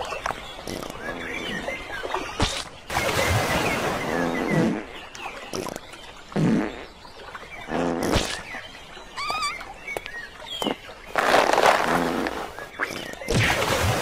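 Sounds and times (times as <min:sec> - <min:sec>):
cartoon fart sounds: 0:06.4 - 0:06.9, 0:07.7 - 0:08.4
bird warbling chirp: 0:07.6 - 0:11.2.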